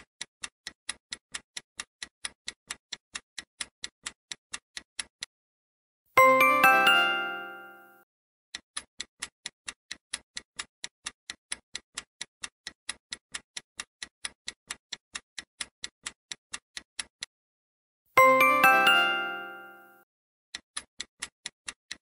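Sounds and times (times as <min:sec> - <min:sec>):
fast clock-like ticking: 0:00.0 - 0:05.3, 0:08.5 - 0:17.3, 0:20.5 - 0:22.0.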